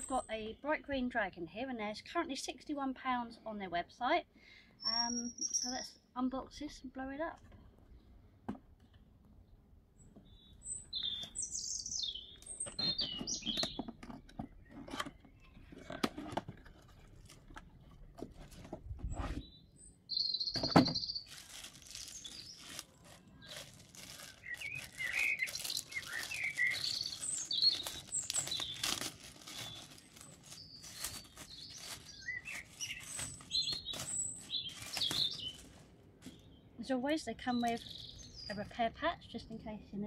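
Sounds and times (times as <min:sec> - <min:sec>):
small birds chirping: 0:04.4 - 0:16.6, 0:17.5 - 0:40.0
plastic packaging crinkling: 0:20.9 - 0:36.3.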